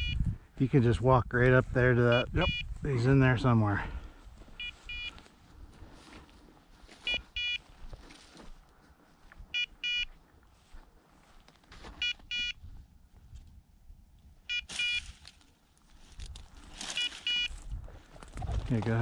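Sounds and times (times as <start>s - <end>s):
short high beeps: 0.0s - 0.2s, 2.1s - 2.7s, 4.6s - 5.2s, 7.0s - 7.6s, 9.6s - 10.1s, 12.0s - 12.6s, 14.5s - 15.1s, 16.9s - 17.5s.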